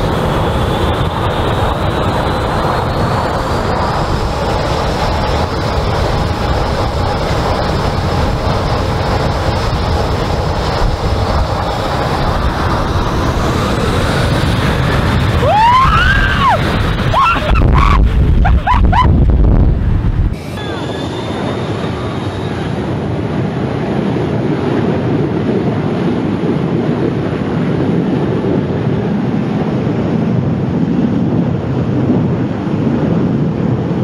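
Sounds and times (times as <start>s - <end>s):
jet blast buffeting microphone: 0.0s - 34.0s
jet engines roaring: 0.0s - 34.0s.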